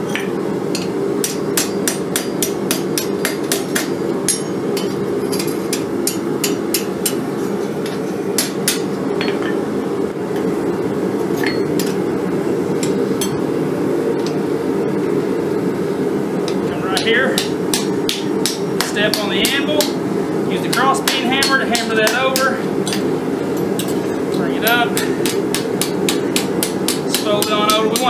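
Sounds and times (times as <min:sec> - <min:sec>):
hammer striking steel on anvil: 0:00.0 - 0:09.6, 0:11.4 - 0:12.0, 0:12.8 - 0:13.4, 0:16.5 - 0:20.0, 0:20.7 - 0:23.1, 0:24.6 - 0:28.0.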